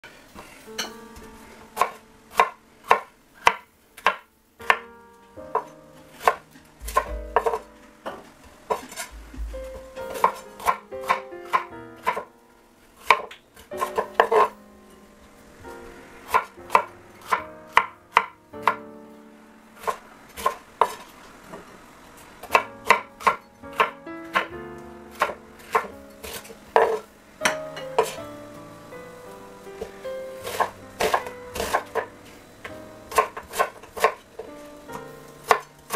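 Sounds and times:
knife chopping on wooden board: 5.6 - 12.3, 22.4 - 24.5, 25.1 - 28.2, 30.4 - 32.1, 33.1 - 34.2, 35.4 - 35.9.

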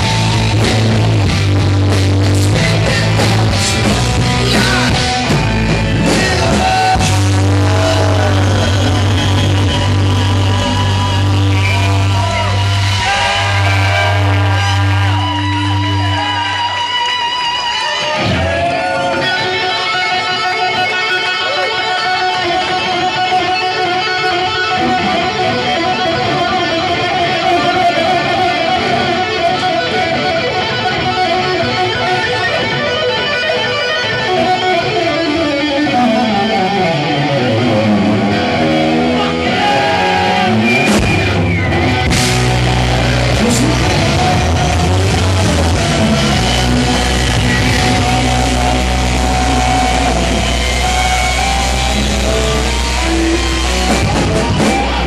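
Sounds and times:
electric guitar solo: 0.0 - 55.0
rock band playing: 0.0 - 55.0.

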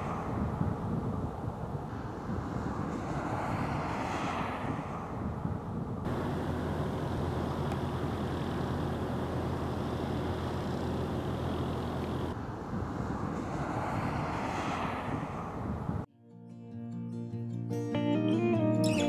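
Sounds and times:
highway traffic rumble: 0.0 - 16.1
car approaching: 6.0 - 12.4.

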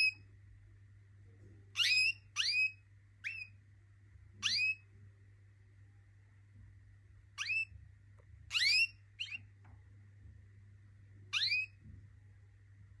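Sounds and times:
canary whistled calls: 0.0 - 0.2, 1.8 - 3.6, 4.4 - 4.9, 7.4 - 7.7, 8.5 - 9.5, 11.3 - 11.8
low steady hum: 0.0 - 13.0.

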